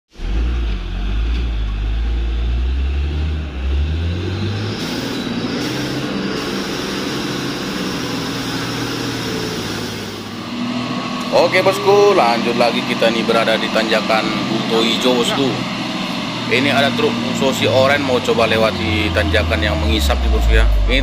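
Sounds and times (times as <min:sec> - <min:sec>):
truck diesel engine labouring: 0:00.2 - 0:21.0
deep rumble: 0:18.6 - 0:21.0.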